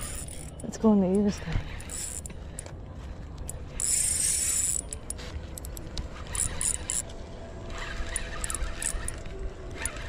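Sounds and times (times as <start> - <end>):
fishing reel clicking and whirring: 0.0 - 0.6, 1.7 - 2.7, 3.7 - 7.1, 7.7 - 10.0.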